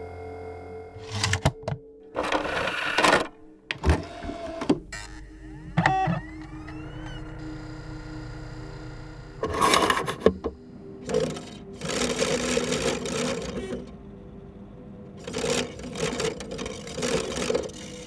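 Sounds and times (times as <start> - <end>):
dvd player mechanism whirring: 1.0 - 14.0, 15.2 - 18.0
small motor hum: 4.0 - 13.9.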